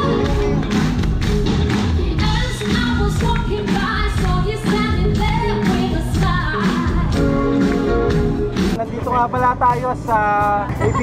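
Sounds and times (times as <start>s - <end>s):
pop song with singing: 0.0s - 8.8s.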